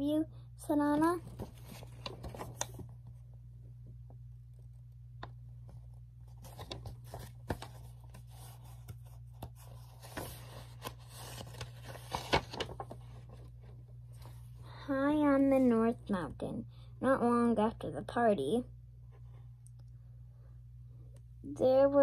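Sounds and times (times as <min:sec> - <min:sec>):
steady low hum: 0:00.0 - 0:22.0
book pages rustling and turning: 0:00.9 - 0:03.2, 0:05.6 - 0:14.6.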